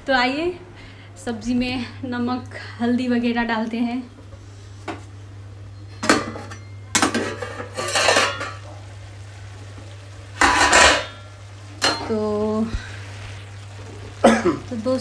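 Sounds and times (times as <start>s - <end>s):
metal pots and utensils clattering: 5.9s - 8.8s, 10.3s - 12.3s.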